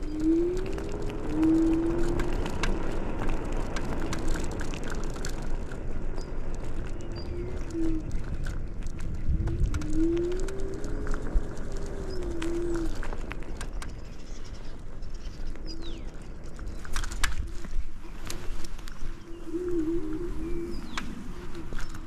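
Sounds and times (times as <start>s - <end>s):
low wavering tone: 0.0s - 2.6s, 19.1s - 22.0s
scooter clicks and rattles: 0.0s - 19.2s, 20.0s - 22.0s
scooter tyre rumble: 0.0s - 22.0s
wind: 0.0s - 22.0s.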